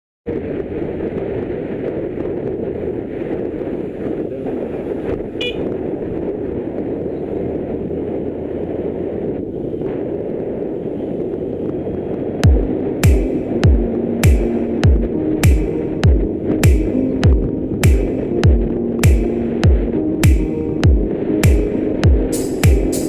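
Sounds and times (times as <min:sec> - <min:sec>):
motorcycle engine and road rumble: 0:00.3 - 0:23.0
wind buffeting: 0:00.3 - 0:23.0
electronic music bass thumps: 0:12.4 - 0:23.0.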